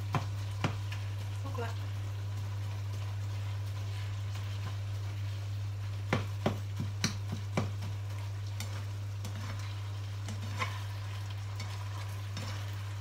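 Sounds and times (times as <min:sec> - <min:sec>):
spatula stirring meat in a pan: 0:00.0 - 0:01.4, 0:02.3 - 0:13.0
steady low hum: 0:00.0 - 0:13.0
spatula knocking against pan: 0:06.1 - 0:07.9.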